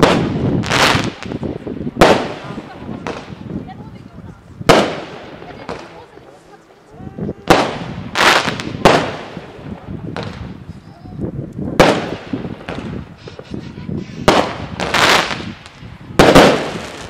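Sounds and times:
firework hiss: 0.0 - 3.6, 7.5 - 11.0, 11.8 - 17.0
fireworks bangs: 0.0 - 6.4, 7.3 - 10.9, 11.7 - 17.0.

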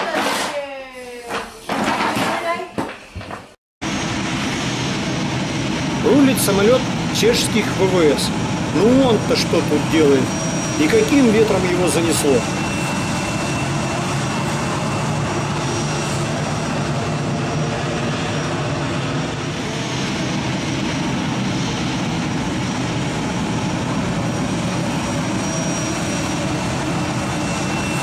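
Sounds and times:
high engine whines: 3.8 - 28.0
jet engines running: 3.8 - 28.0.

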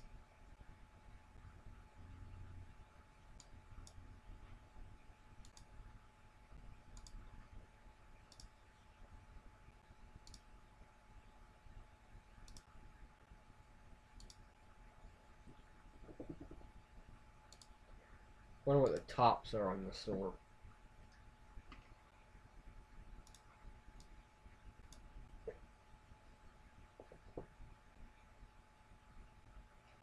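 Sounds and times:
faint steady hum: 0.0 - 30.0
computer mouse clicks: 3.3 - 4.0, 5.4 - 5.7, 6.9 - 7.3, 8.3 - 8.6, 10.2 - 10.5, 12.4 - 12.7, 14.2 - 14.4, 15.5 - 16.7, 17.5 - 17.8, 23.2 - 24.2, 24.8 - 25.6.

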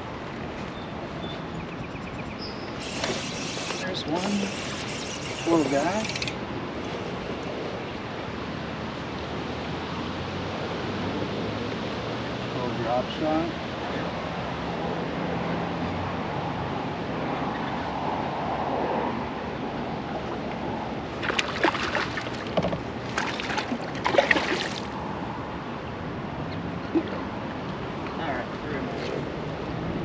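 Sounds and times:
water lapping around kayak: 20.3 - 25.3
sharp clattering and splashing: 21.2 - 24.9.

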